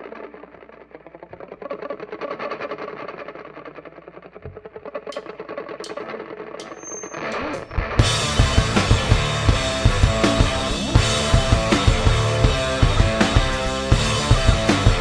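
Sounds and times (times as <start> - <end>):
sharp clicks: 4.5 - 8.0
drums: 6.6 - 15.0.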